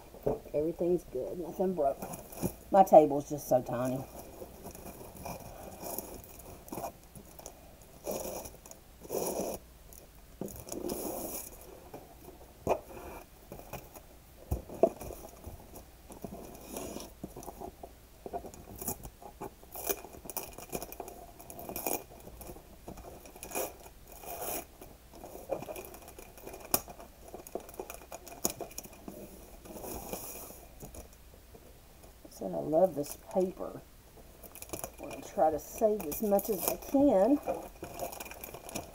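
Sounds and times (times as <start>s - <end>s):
wrapping paper rustling: 4.0s - 9.6s, 18.4s - 31.1s, 34.3s - 38.9s.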